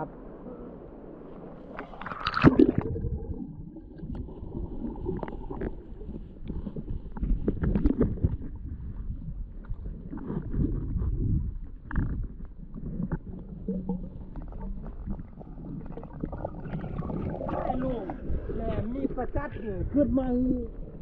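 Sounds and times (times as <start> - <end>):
stream water splashing: 1.4 - 6.1.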